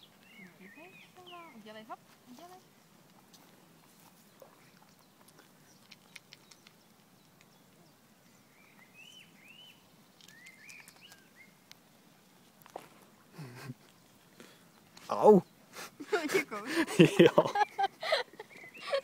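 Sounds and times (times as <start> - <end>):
bird chirping: 0.0 - 2.8, 3.8 - 11.7, 17.3 - 19.0
animal chewing food clicks: 4.4 - 7.6, 10.2 - 11.8.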